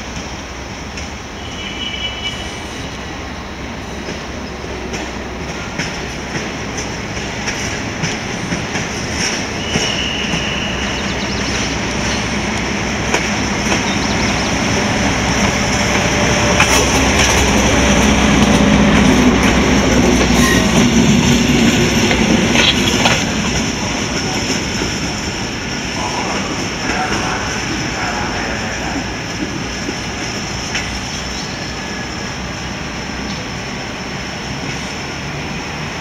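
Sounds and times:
railbus diesel engine running: 0.0 - 36.0
wheels clicking over rail joints: 11.3 - 25.4.

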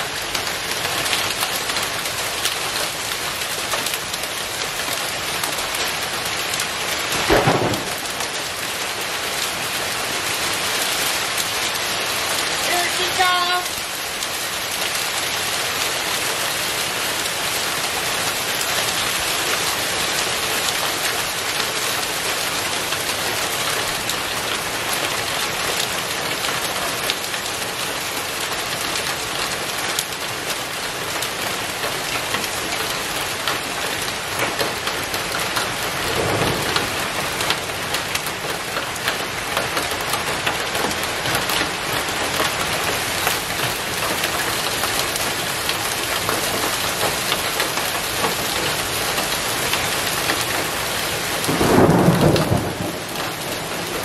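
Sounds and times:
heavy rain pouring: 0.0 - 54.0
thunder rumbling: 7.0 - 8.8, 35.9 - 37.8, 51.4 - 54.0.

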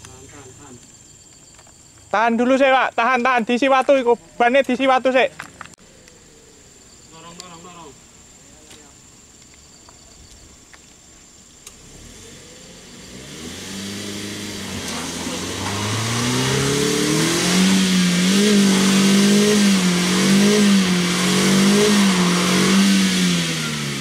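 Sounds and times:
car engine revving hard: 11.7 - 24.0.

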